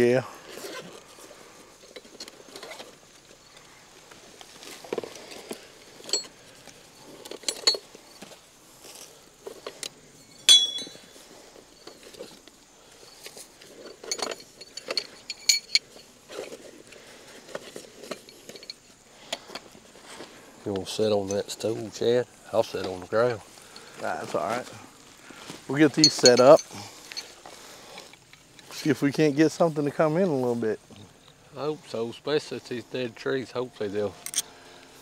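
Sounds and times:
gear clinking and knocking: 4.6 - 8.4, 9.4 - 19.7, 25.7 - 28.8.

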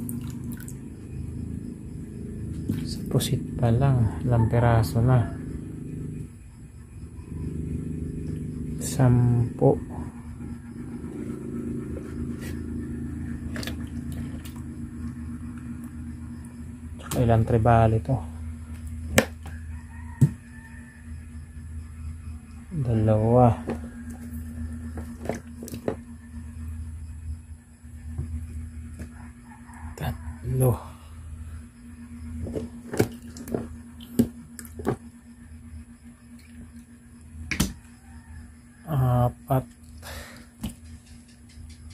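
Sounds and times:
low mechanical hum: 0.0 - 41.9
wet fish slapping on wooden table: 32.4 - 35.0, 37.5 - 37.8.

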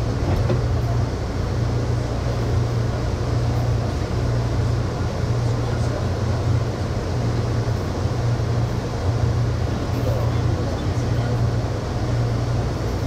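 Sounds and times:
train hum and rumble: 0.0 - 13.0.

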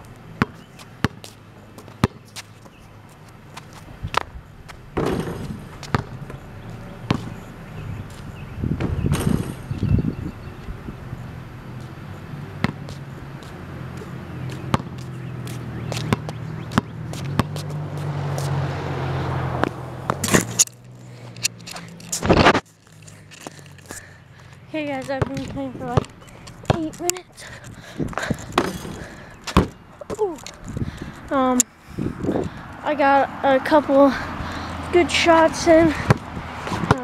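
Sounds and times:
basketball bouncing on concrete: 0.3 - 2.5, 3.1 - 7.4, 12.6 - 18.5, 24.7 - 31.2, 35.4 - 37.0.

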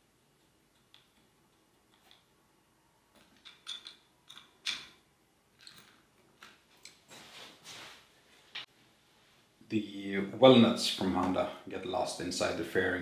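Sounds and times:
small clicks and knocks: 3.1 - 5.0
short rustle: 7.1 - 9.5.

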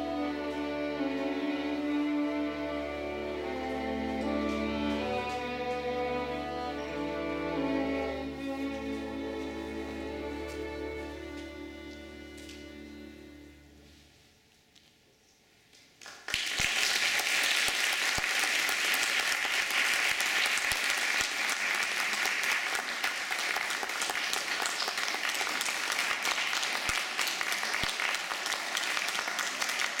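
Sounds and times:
audience applauding: 16.0 - 30.0.

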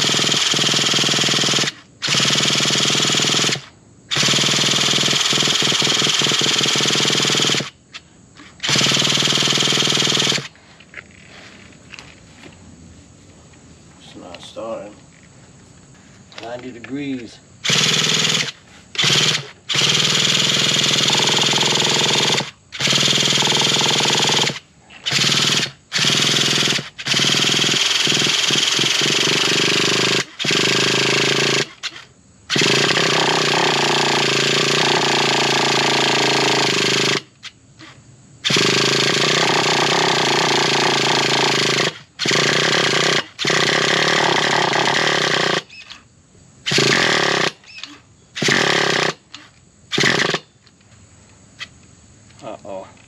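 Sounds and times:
electric starter spinning engine: 0.0 - 7.8, 8.4 - 10.5, 17.6 - 45.8.

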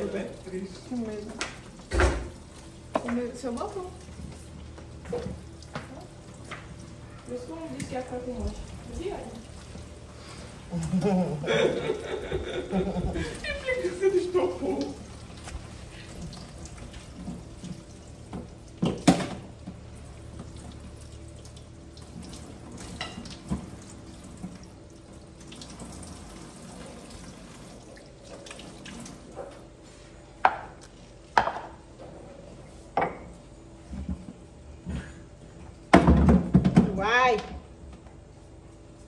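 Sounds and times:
washing chicken by hand: 0.0 - 30.2.

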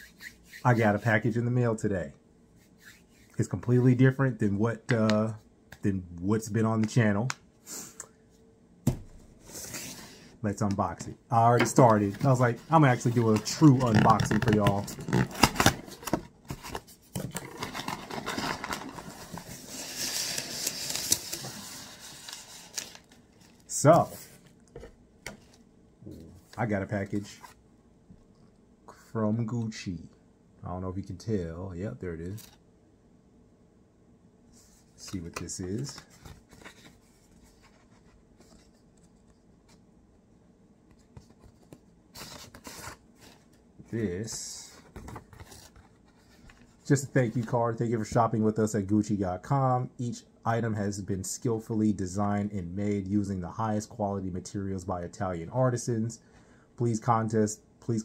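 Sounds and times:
packing paper rustling: 11.7 - 24.4
cardboard box being opened: 13.0 - 21.6.

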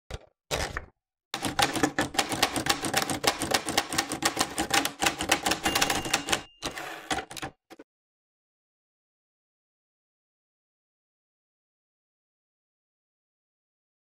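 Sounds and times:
typewriter keystrokes clacking: 1.4 - 7.8.

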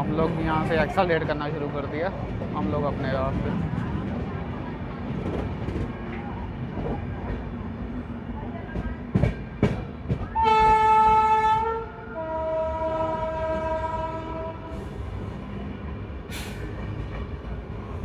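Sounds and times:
moving train rumble: 0.0 - 18.0
train horn blowing: 10.3 - 14.9.

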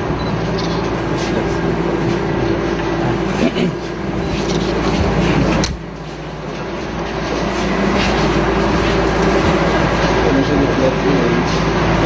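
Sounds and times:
steady low hum: 0.0 - 12.0
crowd murmuring: 1.1 - 5.6.

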